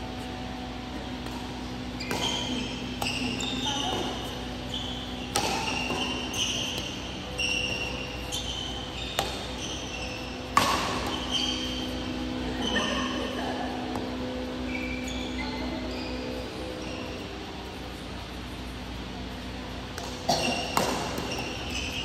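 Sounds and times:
shoes squeaking on court: 0.0 - 13.3, 13.9 - 22.0
steady hum: 0.0 - 22.0
rackets hitting shuttlecock: 1.0 - 4.1, 4.8 - 12.4, 19.9 - 22.0.

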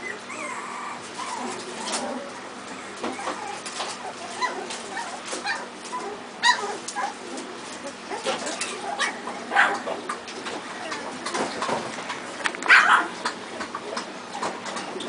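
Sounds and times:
puppies squeaking and whimpering: 0.0 - 14.6.

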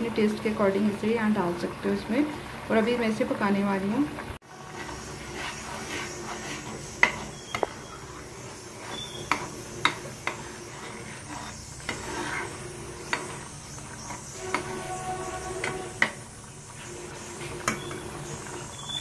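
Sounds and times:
spatula stirring: 4.4 - 18.8
sauce sizzling in a pan: 4.4 - 19.0.

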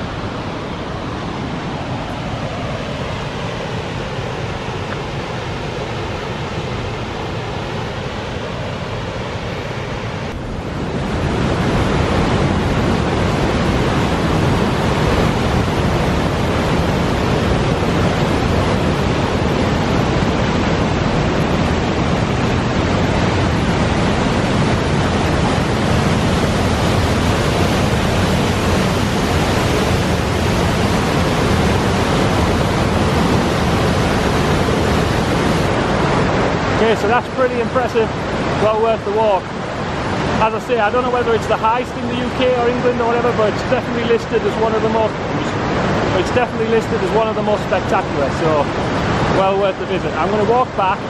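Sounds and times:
waterfall rushing: 0.0 - 51.0.

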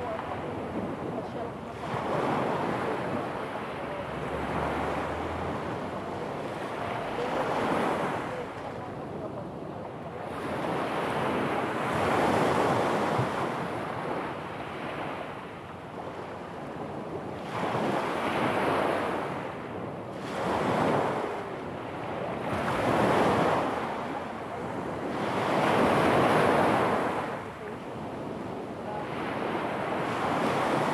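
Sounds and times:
sea waves breaking on stony shore: 0.0 - 9.6, 10.2 - 30.9.

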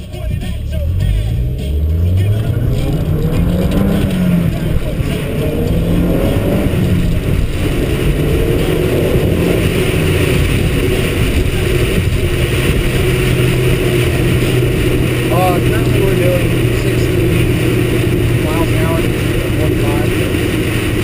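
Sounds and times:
car engine running: 0.0 - 21.0
road and wind noise: 0.0 - 21.0.

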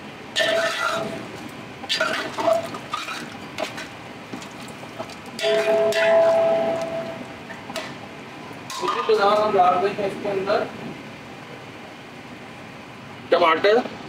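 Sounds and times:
pot ringing metallic tone: 5.4 - 7.4.

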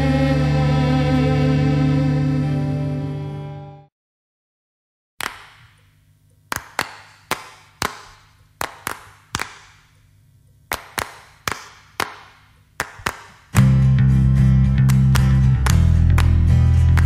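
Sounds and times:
echoing claps or knocks: 5.2 - 5.9, 6.5 - 10.0, 10.7 - 13.8.

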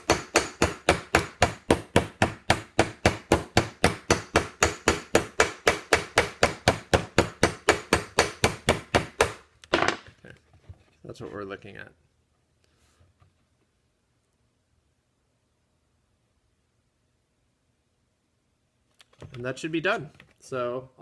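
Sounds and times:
hammer striking metal rivet: 0.0 - 10.0.

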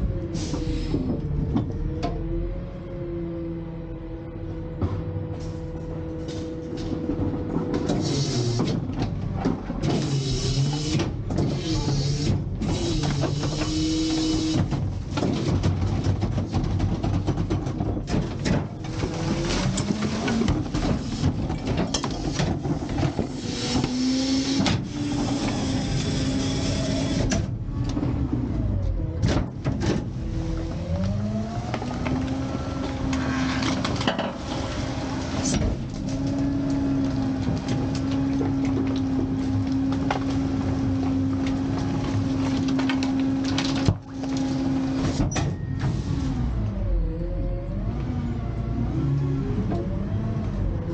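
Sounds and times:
hydraulic pump whine: 0.0 - 14.8, 18.8 - 29.1
truck engine speeding up: 30.2 - 42.3, 46.1 - 50.9
metal clanks and scraping: 33.1 - 36.4.

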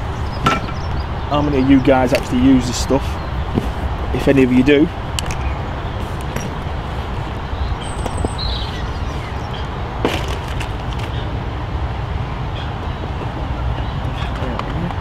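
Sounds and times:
steady low rumble: 0.0 - 14.2
fishing tackle clicking and rustling: 5.1 - 7.2, 10.1 - 11.2.

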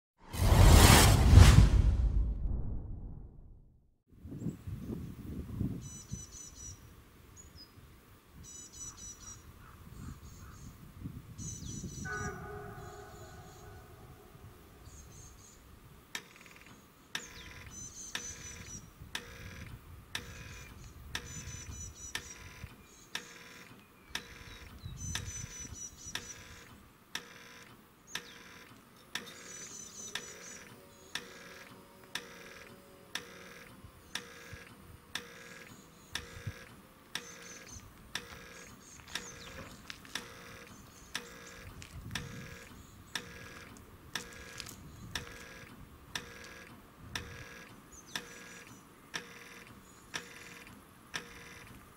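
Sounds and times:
level crossing warning bell: 12.1 - 14.1.

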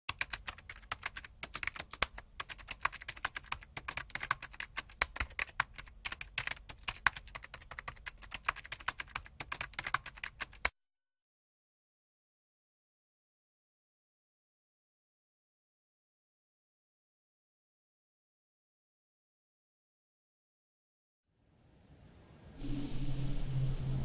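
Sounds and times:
keyboard typing clicks: 0.1 - 10.7.

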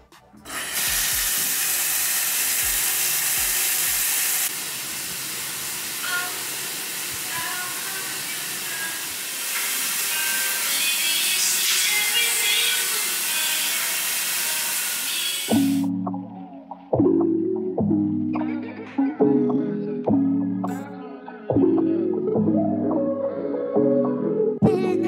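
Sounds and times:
shower spray hissing: 0.4 - 15.9.

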